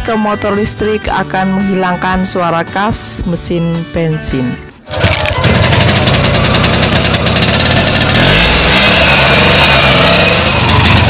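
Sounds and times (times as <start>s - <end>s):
small petrol engine running: 4.9s - 11.0s.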